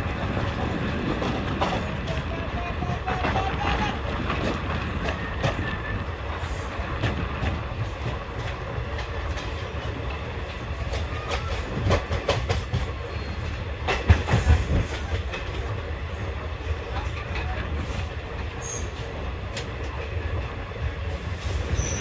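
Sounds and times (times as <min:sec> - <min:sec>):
train wheels clacking over rail joints: 0:00.0 - 0:15.9.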